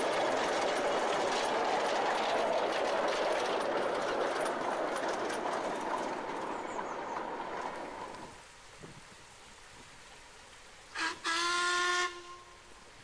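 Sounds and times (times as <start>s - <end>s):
train wheels clattering on rails: 0.0s - 9.0s.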